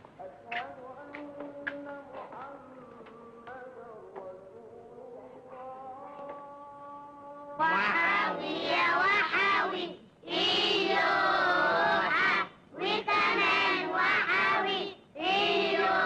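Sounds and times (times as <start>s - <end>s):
children singing: 7.6s - 16.0s.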